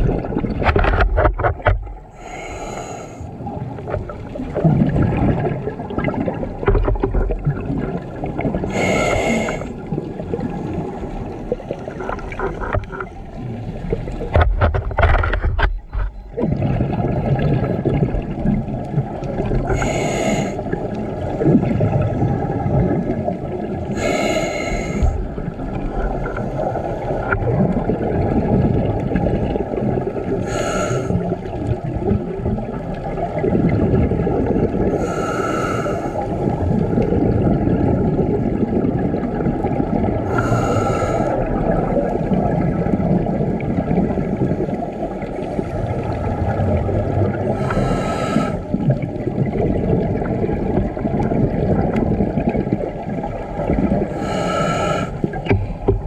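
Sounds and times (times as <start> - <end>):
regulator bubbling underwater: 0.0 - 56.0
hissing inhalation through regulator: 2.2 - 3.3, 8.7 - 9.7, 19.7 - 20.6, 24.0 - 25.2, 30.4 - 31.2, 34.9 - 36.3, 40.3 - 41.5, 47.6 - 48.7, 54.2 - 55.4.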